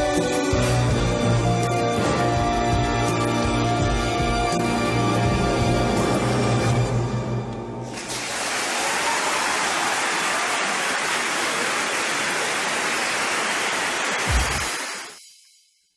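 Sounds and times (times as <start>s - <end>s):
audience applauding: 7.9s - 15.2s.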